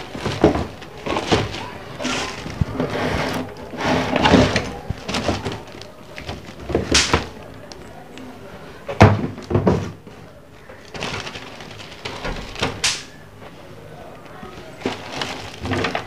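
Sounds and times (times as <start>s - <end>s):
plastic bag crinkling: 0.0s - 8.0s, 10.2s - 16.0s.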